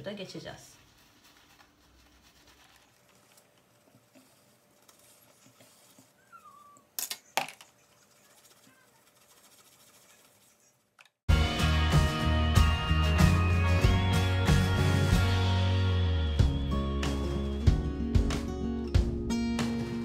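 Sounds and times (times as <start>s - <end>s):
brush rubbing on cleaning pad: 0.7s - 6.7s, 7.7s - 10.9s.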